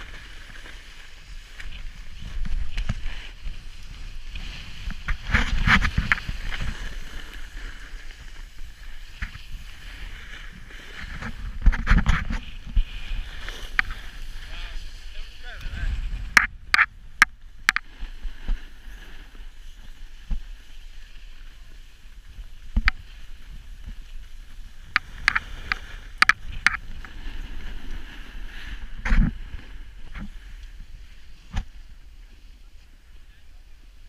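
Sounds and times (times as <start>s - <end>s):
snowboard scraping over snow: 0.0s - 34.0s.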